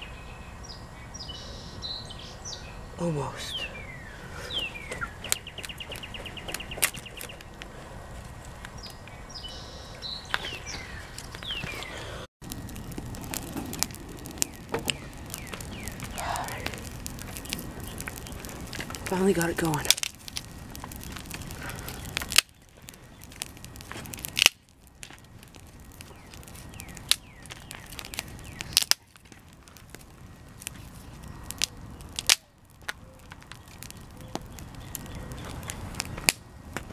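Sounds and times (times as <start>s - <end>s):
songbirds singing: 0.0s - 7.6s, 8.6s - 12.3s, 14.3s - 19.9s, 21.5s - 23.5s, 25.8s - 29.0s, 31.0s - 36.2s
campfire crackling: 0.5s - 36.9s
fire popping: 0.6s - 36.9s.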